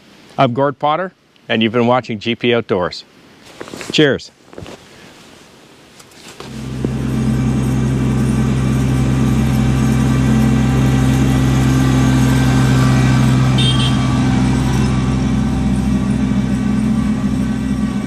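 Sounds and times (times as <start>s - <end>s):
tractor diesel engine droning: 6.4s - 18.0s.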